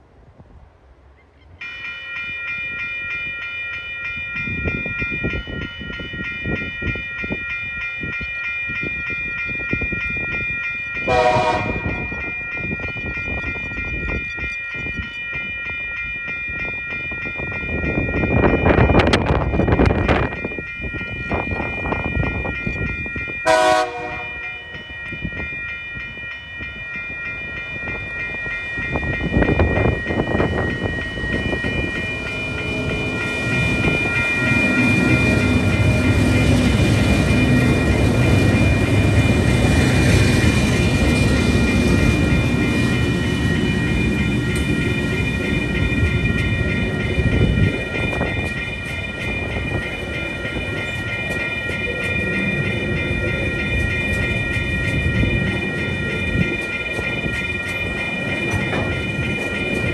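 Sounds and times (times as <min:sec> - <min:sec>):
level crossing bells ringing: 0:01.6 - 0:59.9
train wagons rolling: 0:10.8 - 0:59.9
train horn blast: 0:11.1 - 0:12.0, 0:23.4 - 0:24.5
locomotive engine rumble: 0:28.1 - 0:59.9.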